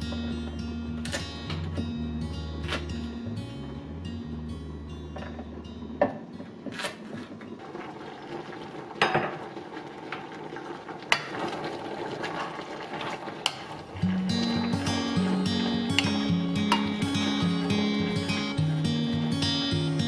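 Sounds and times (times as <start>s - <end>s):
pot bubbling: 4.3s - 20.0s.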